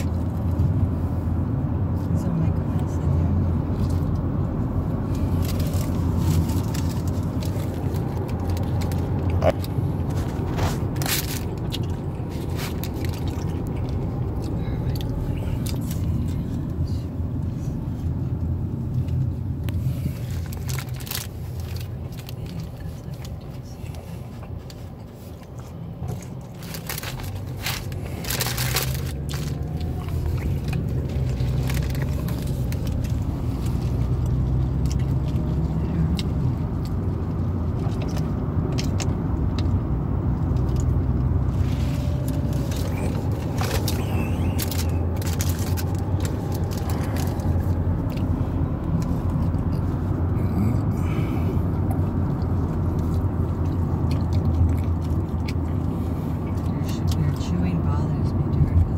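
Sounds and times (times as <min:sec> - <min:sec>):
road and engine rumble in car: 0:00.0 - 0:58.9
chewing: 0:05.0 - 0:16.6, 0:18.4 - 0:57.2
paper wrapper crinkling: 0:05.4 - 0:14.0, 0:20.2 - 0:22.6, 0:26.4 - 0:33.9, 0:41.8 - 0:47.8.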